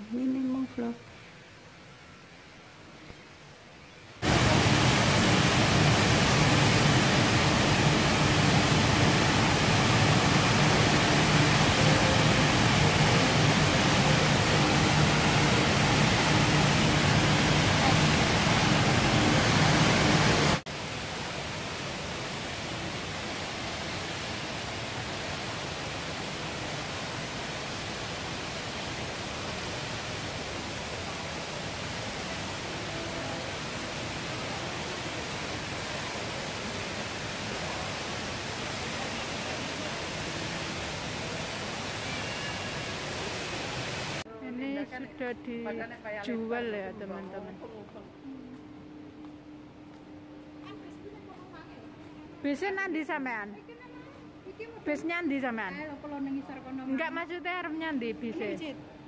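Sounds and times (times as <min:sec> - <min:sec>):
indoor waterfall rushing: 0:03.9 - 0:44.3.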